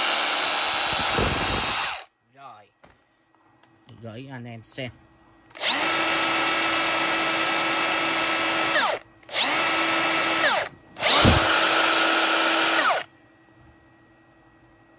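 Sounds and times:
rotary hammer whining: 0:00.0 - 0:02.1, 0:05.5 - 0:13.1.

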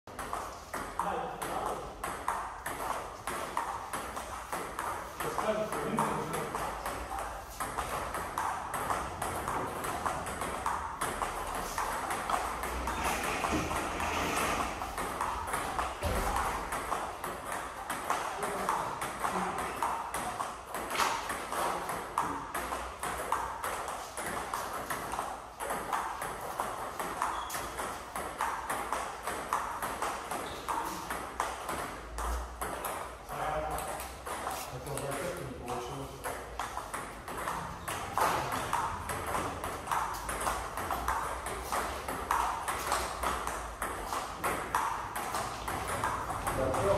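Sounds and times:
table tennis ball clicking: 0:36.2 - 0:46.9.

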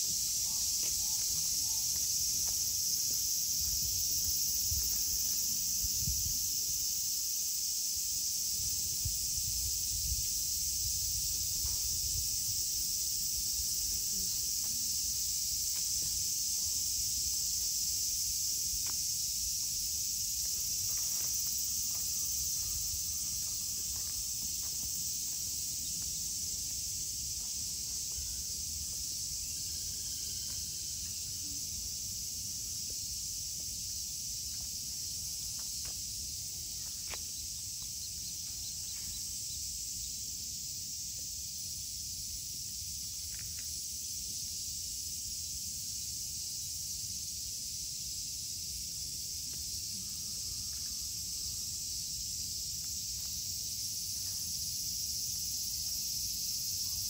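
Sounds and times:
cicadas droning: 0:00.0 - 0:57.0.

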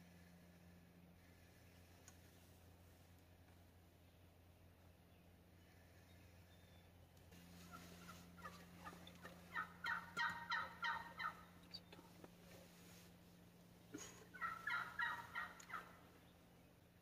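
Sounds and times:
turkey yelps: 0:07.6 - 0:11.5, 0:14.3 - 0:16.0.

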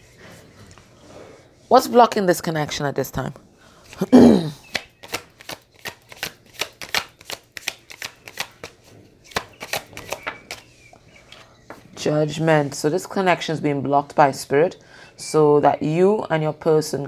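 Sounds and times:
cards being shuffled: 0:04.7 - 0:10.7.

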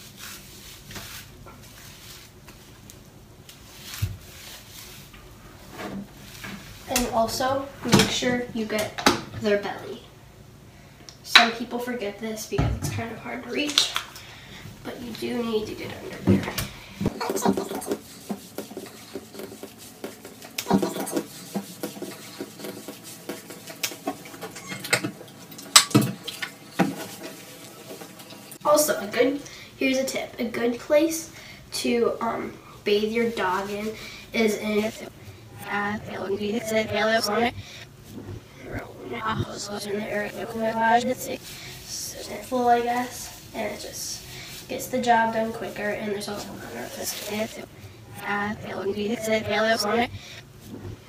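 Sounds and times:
hands scrubbing wet fur: 0:00.0 - 0:02.9, 0:03.5 - 0:07.6, 0:17.1 - 0:29.3, 0:32.2 - 0:38.2, 0:39.1 - 0:50.1
fingertips scrubbing wet fur: 0:17.1 - 0:24.6.

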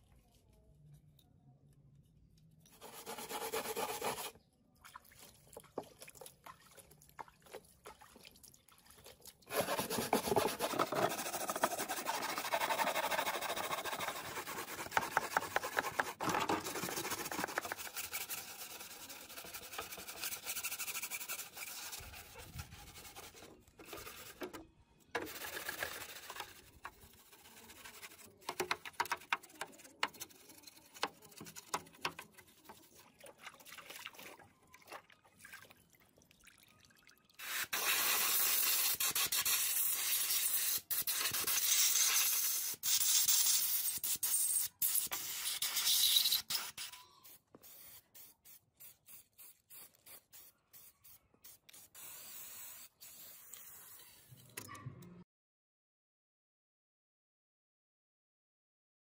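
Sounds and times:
brush scrubbing wet plastic: 0:05.1 - 0:24.6, 0:25.2 - 0:35.6.

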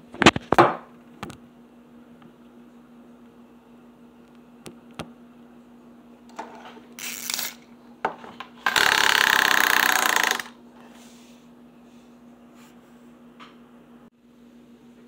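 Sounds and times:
toy pull cord rattling: 0:07.0 - 0:07.6, 0:08.7 - 0:10.5
rapid mechanical buzz: 0:08.6 - 0:10.6.

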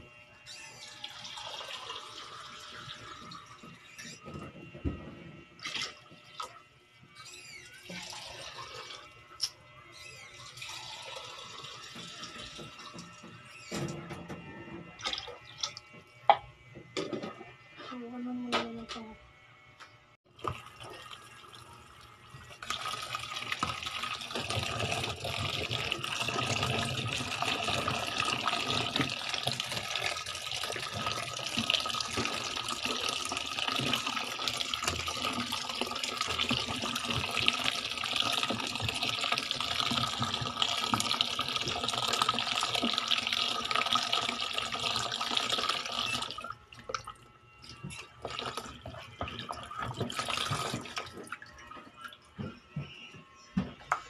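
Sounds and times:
tap water splashing in sink: 0:20.4 - 0:21.1, 0:22.6 - 0:47.1, 0:47.8 - 0:51.4.

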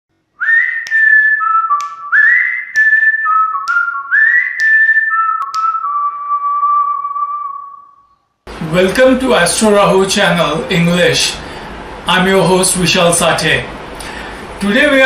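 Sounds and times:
whistled jingle: 0:00.4 - 0:08.2.

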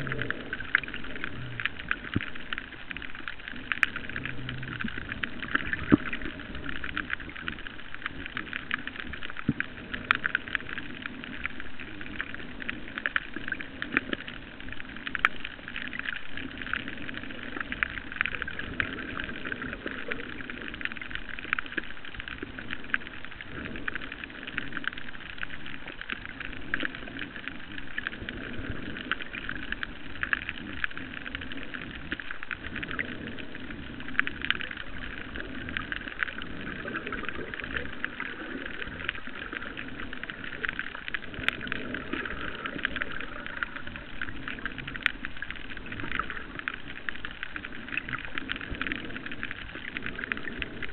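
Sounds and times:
crackle of tiny clicks: 0:00.0 - 0:50.9
low underwater murmur: 0:00.0 - 0:50.9.

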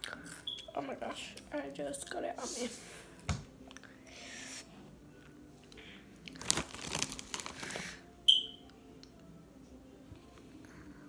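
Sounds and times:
crinkling handling noise: 0:06.3 - 0:07.8
sharp high squeak: 0:08.3 - 0:08.6.

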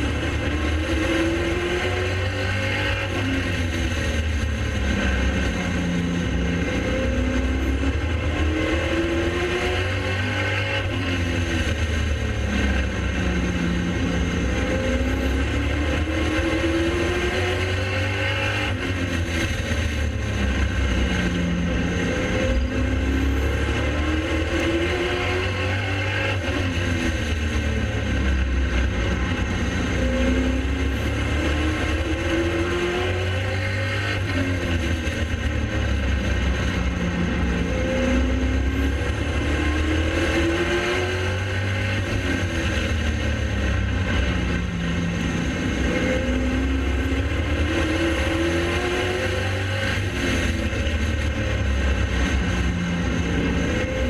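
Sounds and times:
race car engine at speed: 0:00.0 - 0:54.0.

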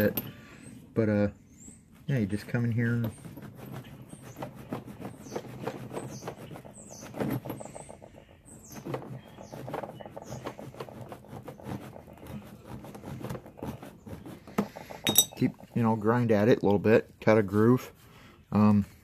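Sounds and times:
stone flake rasping on wood: 0:03.1 - 0:15.8.

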